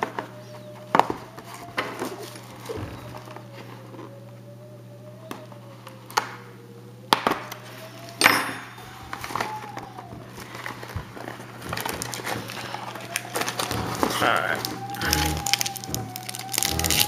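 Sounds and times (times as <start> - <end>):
foil packs rustling: 0.0 - 4.1, 8.8 - 17.0
low hum: 0.0 - 17.0
plastic wrap crinkling: 0.7 - 4.1, 8.8 - 17.0
cardboard snaps and clicks: 9.1 - 17.0
cardboard tearing: 10.3 - 17.0.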